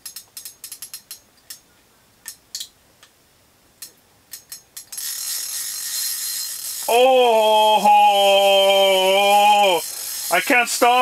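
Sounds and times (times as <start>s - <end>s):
fishing reel clicking: 0.0s - 1.6s, 4.3s - 11.0s.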